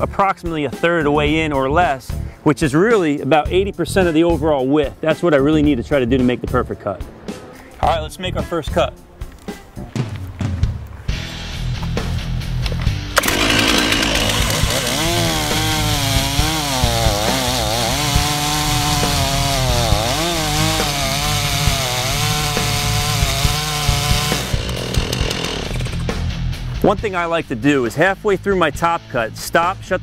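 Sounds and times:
background music: 0.0s - 30.0s
chainsaw cutting wood: 13.2s - 26.3s.

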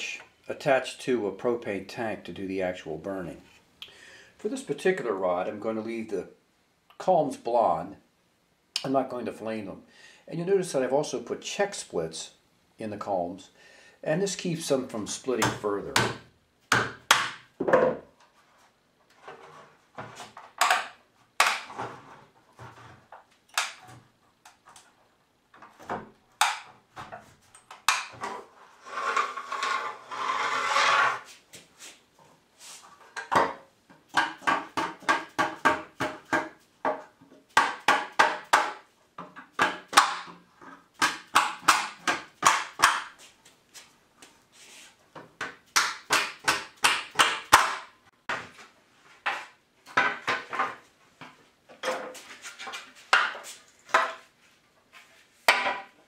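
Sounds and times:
sharp wooden knocks: 15.4s - 18.0s, 20.6s - 21.9s, 25.8s - 27.2s, 33.2s - 40.4s, 41.0s - 43.2s, 45.4s - 48.5s, 55.5s - 56.0s
bamboo rasping: 28.2s - 31.3s.

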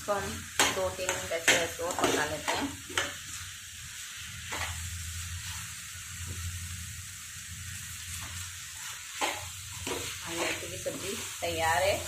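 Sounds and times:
vegetables sizzling in a pan: 0.0s - 12.0s
spatula scraping: 8.1s - 11.3s.

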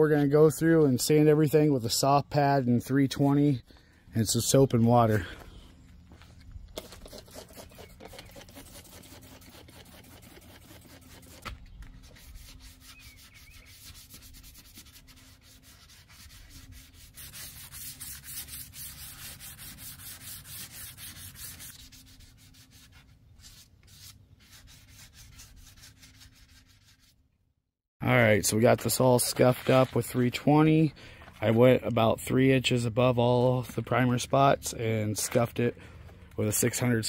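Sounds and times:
wet sanding rasping strokes: 6.8s - 27.2s.

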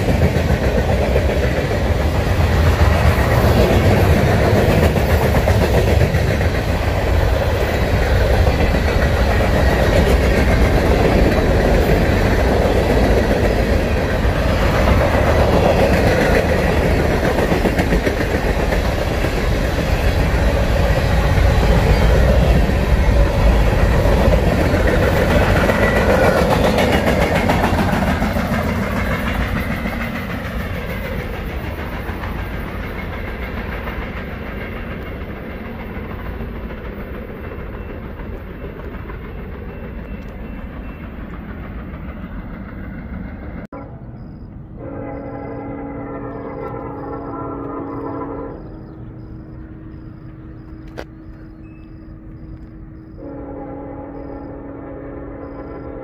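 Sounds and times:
train wheels rolling on rails: 0.0s - 56.0s
locomotive horn: 44.8s - 48.8s, 53.2s - 56.0s.

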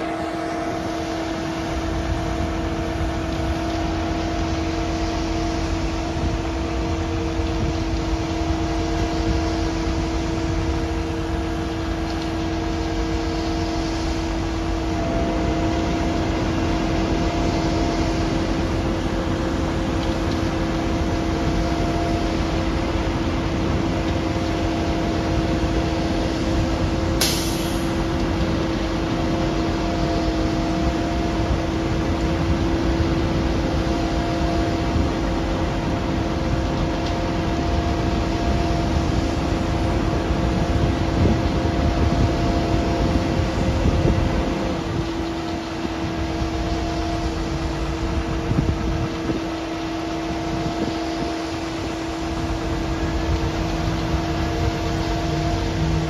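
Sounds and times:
diesel engine rumble: 0.0s - 56.0s
multi-tone hum: 0.0s - 56.0s
short hiss: 27.2s - 27.9s.

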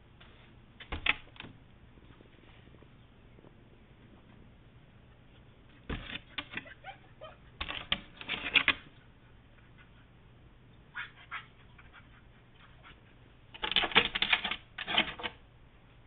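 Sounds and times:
dog claws tapping on glass door: 7.6s - 8.8s, 13.6s - 15.4s.

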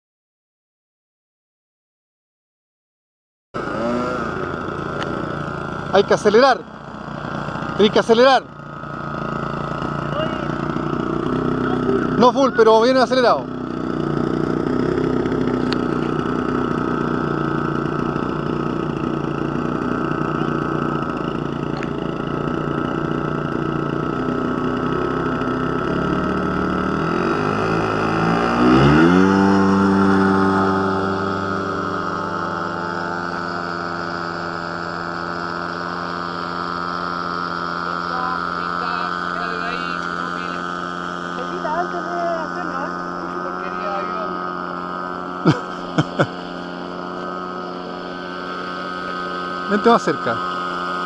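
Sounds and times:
model plane engine revving: 3.6s - 51.0s.

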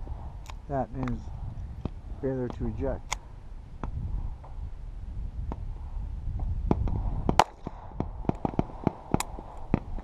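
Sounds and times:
pistol shot: 7.3s - 9.4s.

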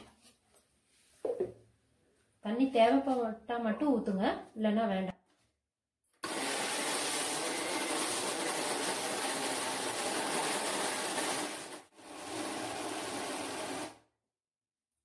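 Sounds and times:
mixer grinder running: 6.2s - 14.1s.

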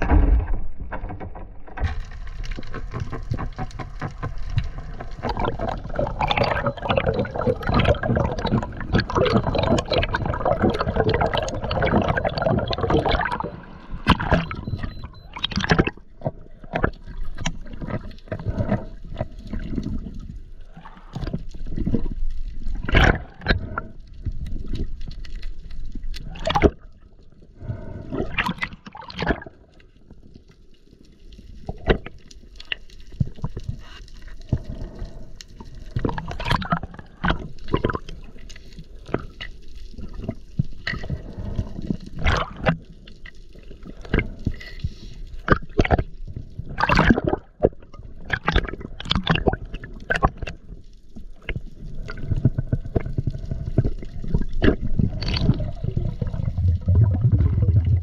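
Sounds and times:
water splashes and knocks: 0.0s - 13.4s, 14.0s - 19.5s
water bubbling underwater: 0.0s - 30.2s, 31.6s - 58.0s.

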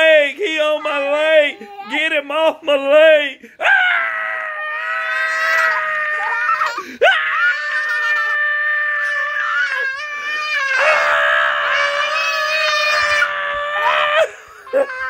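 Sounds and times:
toddler screaming: 4.1s - 15.0s.

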